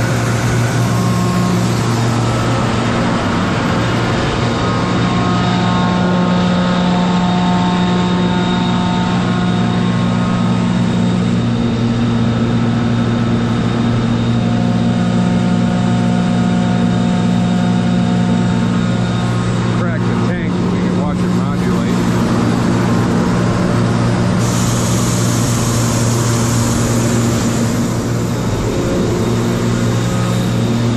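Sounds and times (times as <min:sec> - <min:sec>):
air compressor humming: 0:00.0 - 0:30.9
faint whines: 0:22.0 - 0:30.9.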